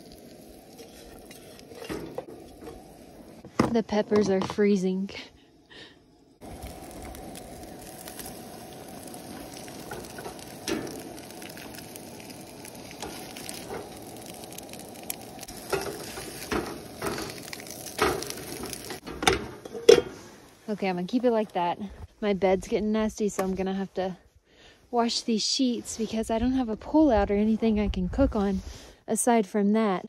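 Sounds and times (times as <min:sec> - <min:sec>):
eggs sizzling in a frying pan: 0:00.0 - 0:21.8.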